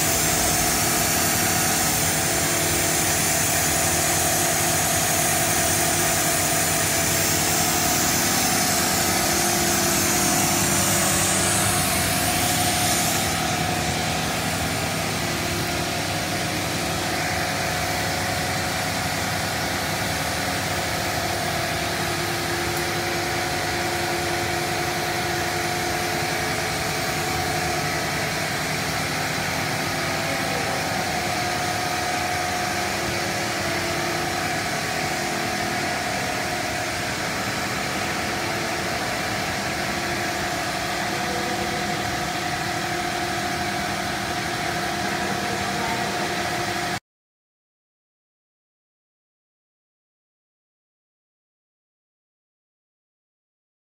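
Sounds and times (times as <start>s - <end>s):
high hiss: 0.0s - 15.4s
machinery hum and whir: 0.0s - 47.0s.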